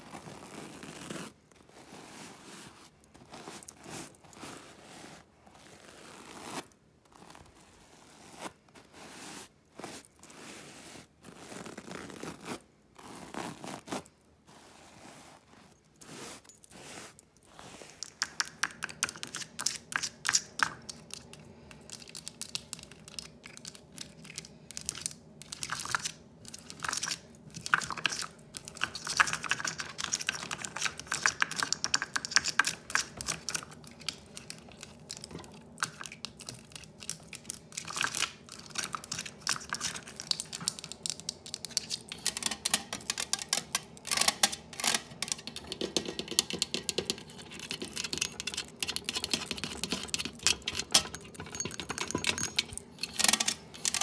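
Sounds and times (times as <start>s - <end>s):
tapping on decorations: 39.0s - 54.0s.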